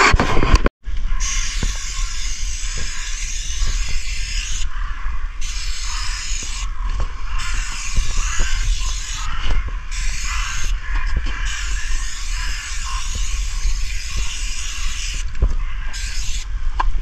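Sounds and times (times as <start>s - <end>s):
spray paint can hissing: 1.2s - 4.7s, 5.4s - 6.7s, 7.4s - 9.3s, 9.9s - 10.8s, 11.4s - 15.3s, 15.9s - 16.5s.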